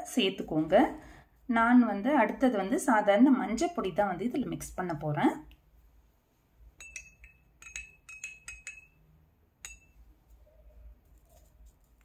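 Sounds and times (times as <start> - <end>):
stirrer tapping glass: 6.8 - 10.0.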